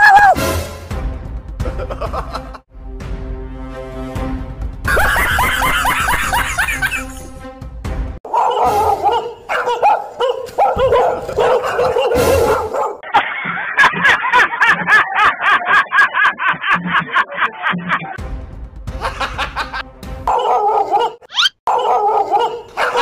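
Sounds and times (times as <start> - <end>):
fake dog barking: 8.3 - 13.0, 20.3 - 23.0.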